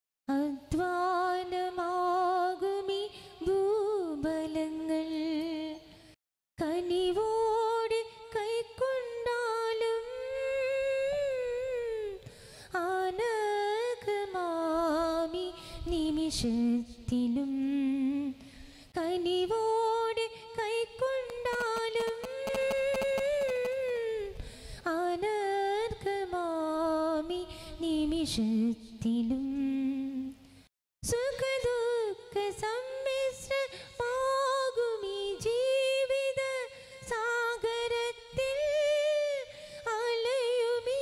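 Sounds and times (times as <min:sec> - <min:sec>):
woman singing a hymn: 0:19.0 - 0:30.3, 0:31.1 - 0:41.0.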